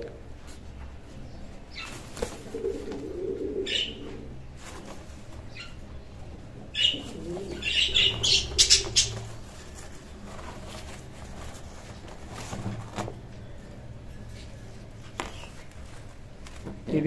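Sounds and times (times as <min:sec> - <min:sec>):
pigeon flapping and scuffling: 0:00.2 - 0:05.7, 0:06.3 - 0:13.4.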